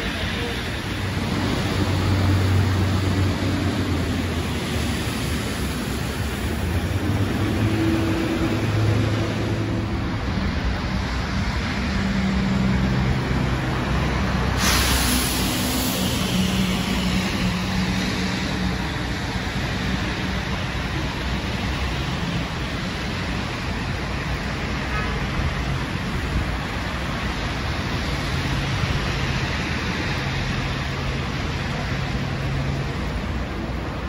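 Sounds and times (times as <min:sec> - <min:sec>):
car passing: 0:00.0 - 0:24.6
bus engine hum: 0:00.0 - 0:34.0
traffic and tyres on wet road: 0:00.0 - 0:34.0.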